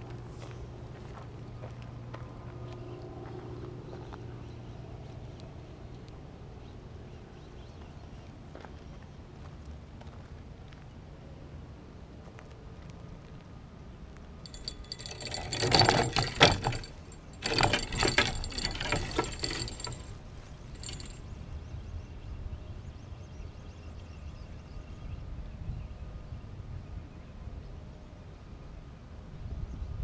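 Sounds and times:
fishing reel cranking: 14.5s - 20.1s, 20.8s - 21.2s.

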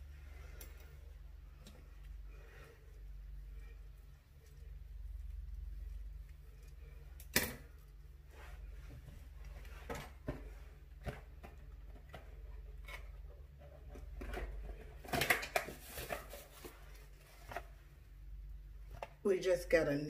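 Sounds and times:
steady low hum: 0.0s - 15.1s
rustling: 0.0s - 19.0s.

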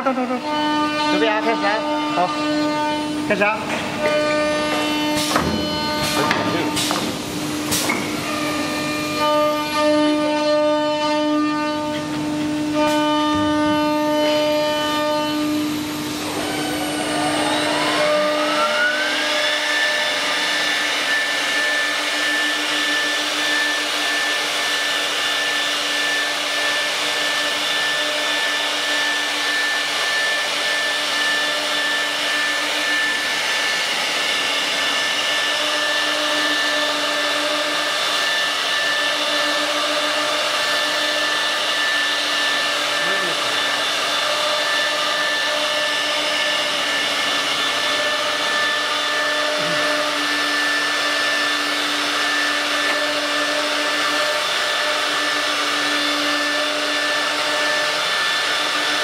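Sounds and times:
cnc router spindles whining: 0.0s - 59.0s
low hum: 15.7s - 21.2s.

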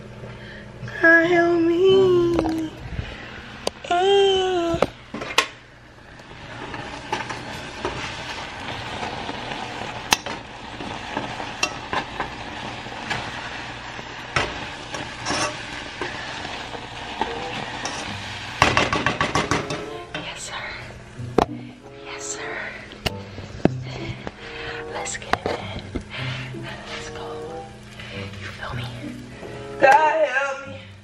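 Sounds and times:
cooking hiss: 1.7s - 31.0s
utensil scraping a pot: 6.5s - 19.9s.

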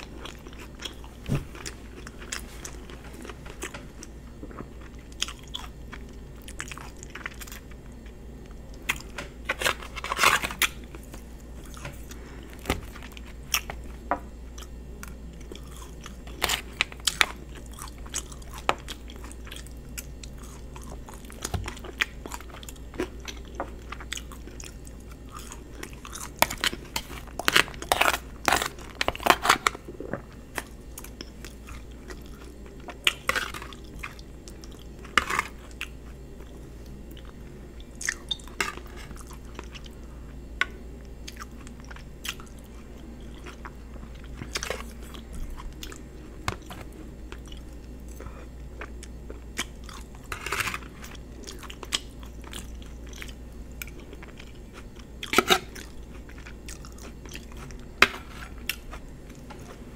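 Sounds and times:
chewing wet mouth sounds: 51.0s - 57.9s.

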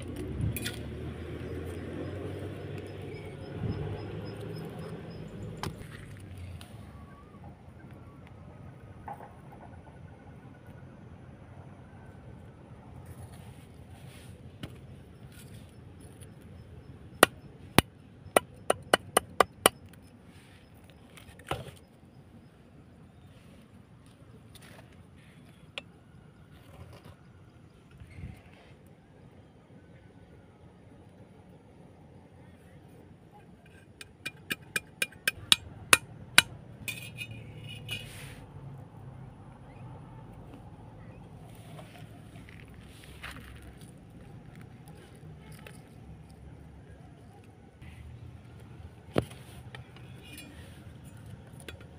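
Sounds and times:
machete tapping bamboo peg: 17.2s - 19.8s, 34.0s - 36.5s
machete chopping bamboo on board: 18.4s - 19.8s
scrape of handling pieces: 36.9s - 38.5s.

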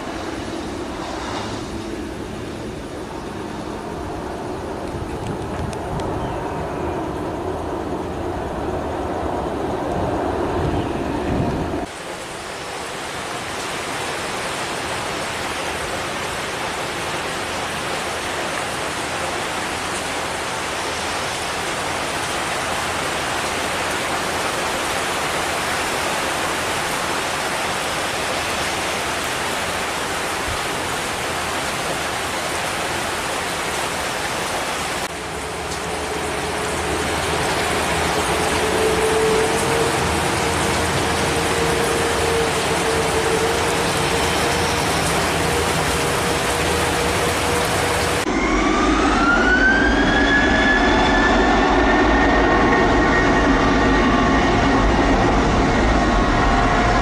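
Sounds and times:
jet engines rumbling: 0.0s - 57.0s
heavy rain hissing: 11.8s - 48.3s.

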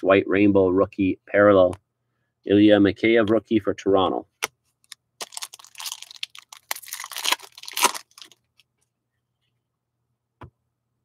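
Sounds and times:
cards rustling and scraping: 4.6s - 8.7s.

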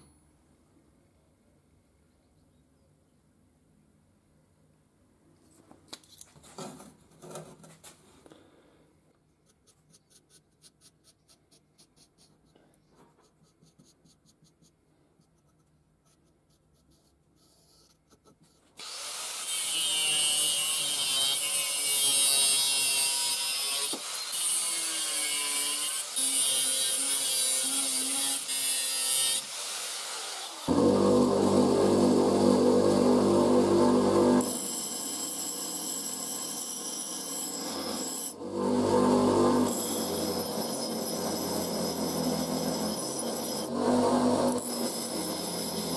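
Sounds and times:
marker scratching on metal: 9.4s - 18.8s
angle grinder cutting steel: 18.8s - 45.9s.

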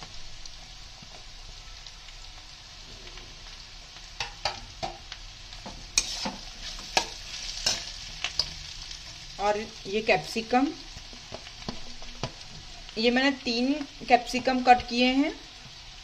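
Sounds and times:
vegetables sizzling in oil: 0.0s - 16.0s
metal spatula scraping pan: 5.9s - 8.6s.

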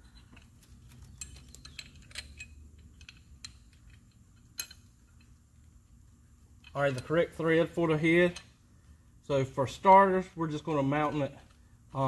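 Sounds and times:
metallic clicks of bolt handling: 0.0s - 5.4s.

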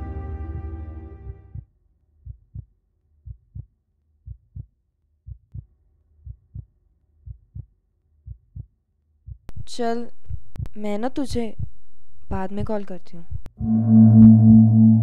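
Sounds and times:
heartbeat thumping: 9.3s - 15.0s.

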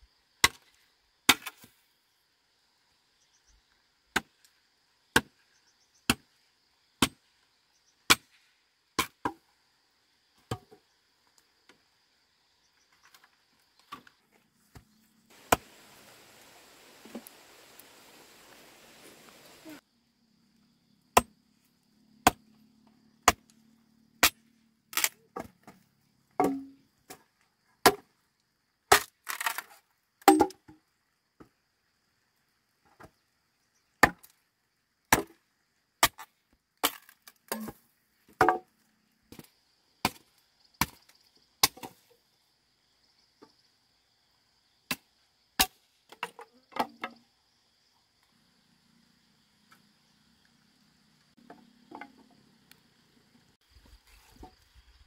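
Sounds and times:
blade chopping wooden pole: 23.2s - 23.5s, 26.4s - 26.8s, 35.1s - 35.4s.

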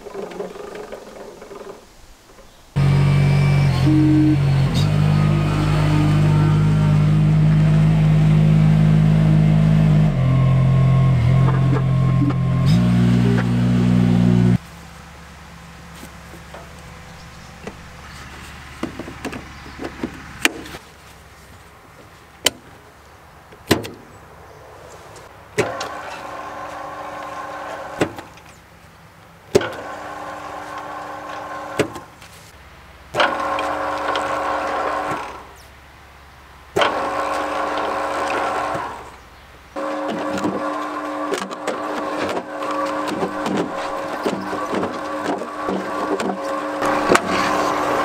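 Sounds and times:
electric motor whining: 2.8s - 14.6s, 33.2s - 35.5s, 36.8s - 39.2s, 39.8s - 48.0s.

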